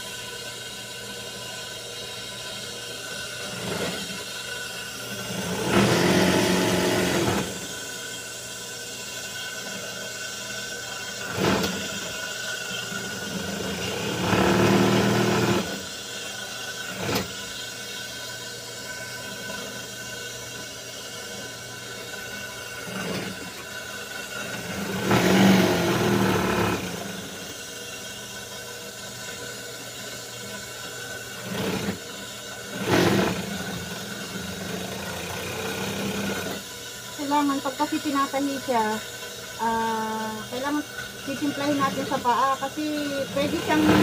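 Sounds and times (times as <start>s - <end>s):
sewing machine motor humming: 5.1s - 7.8s, 11.2s - 12.2s, 12.8s - 15.8s, 22.8s - 23.7s, 24.4s - 27.6s, 31.3s - 44.0s
sewing machine stitching: 5.2s - 7.7s, 11.2s - 12.1s, 13.2s - 15.8s, 24.5s - 27.4s, 31.4s - 32.0s, 32.7s - 36.6s, 43.0s - 44.0s.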